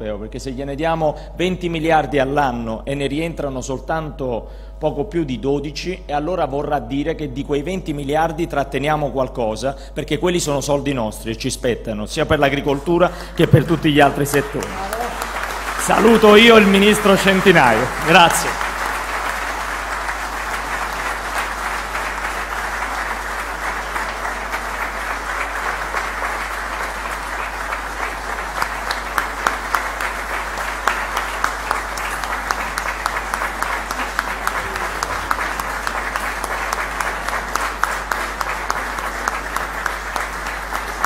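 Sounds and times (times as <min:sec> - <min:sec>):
audience applauding: 0:13.3 - 0:41.0.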